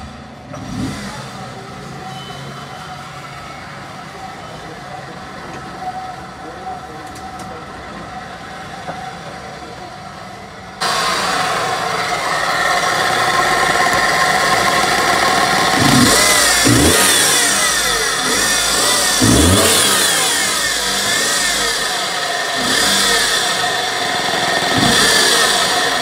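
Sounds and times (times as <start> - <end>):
van engine revving: 0.0 - 2.0, 10.7 - 26.0
engine whine: 0.0 - 26.0.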